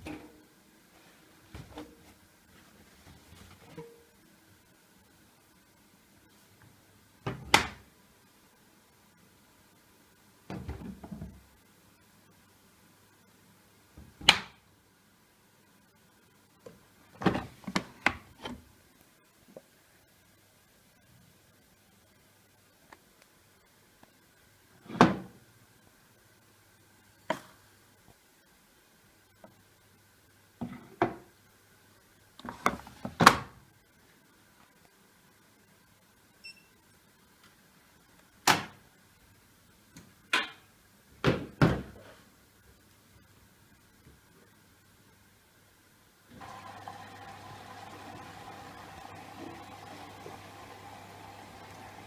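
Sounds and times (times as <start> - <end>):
washing machine beep: 36.4 - 36.7.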